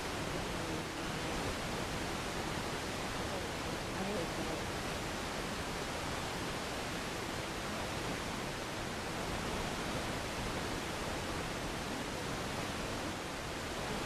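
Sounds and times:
radio static hiss: 0.0s - 6.0s.

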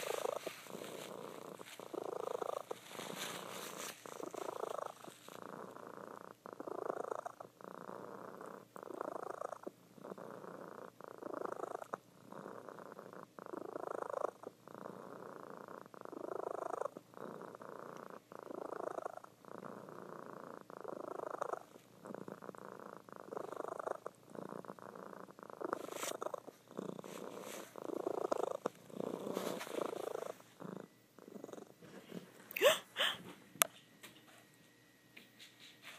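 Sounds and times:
cat purring: 0.0s - 34.5s.

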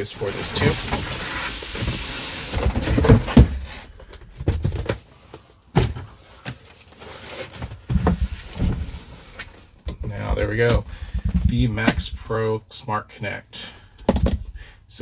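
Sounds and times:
cardboard sliding: 0.2s - 4.0s.

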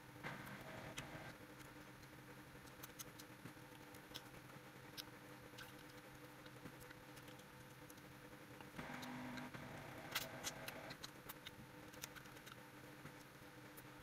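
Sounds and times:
wet chewing: 2.0s - 8.1s, 10.0s - 12.6s.

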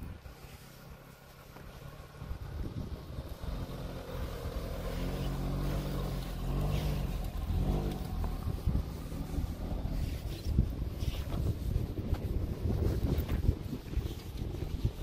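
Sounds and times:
car engine revving: 1.7s - 11.2s.

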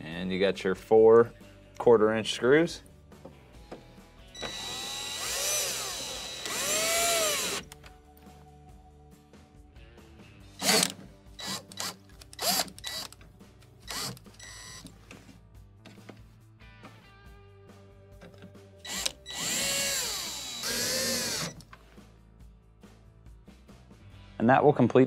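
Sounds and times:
cordless drill motor whine: 4.4s - 7.6s, 18.9s - 21.6s.

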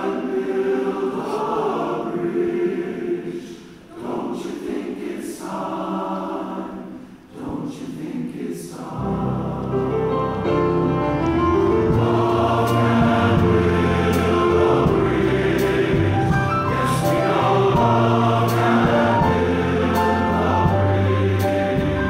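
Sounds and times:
men's chorus singing in harmony: 0.0s - 10.6s, 11.6s - 22.0s.

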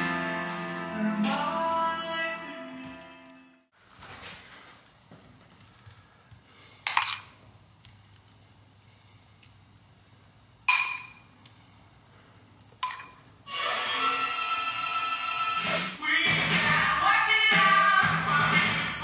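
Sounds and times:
background music: 0.0s - 3.7s, 13.5s - 19.0s
spoon clinking against a bowl: 10.7s - 11.2s.

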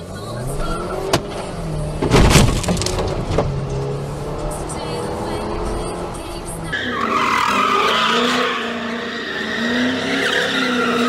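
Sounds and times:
car engine revving: 0.0s - 11.0s
tyres squealing: 6.6s - 11.0s.

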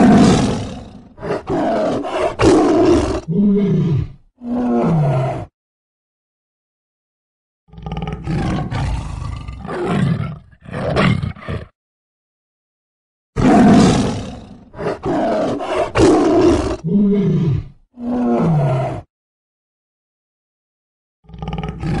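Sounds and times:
tiger roaring: 0.0s - 5.5s, 7.7s - 11.7s, 13.4s - 19.1s, 21.3s - 22.0s.

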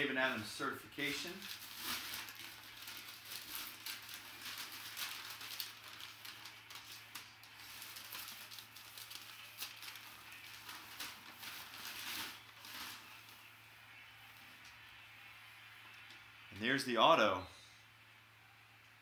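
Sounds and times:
packing paper rustling and crinkling: 1.0s - 13.5s.

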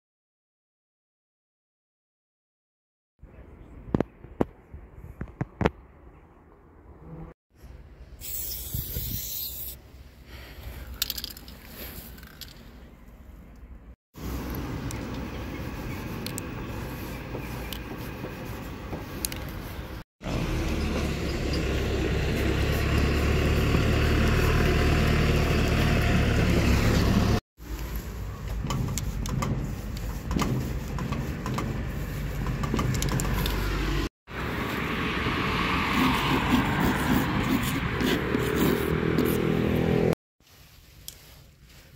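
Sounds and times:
road traffic rumble: 3.3s - 40.6s
paint marker scratching on wall: 14.4s - 20.0s, 28.6s - 33.9s, 35.9s - 39.6s.

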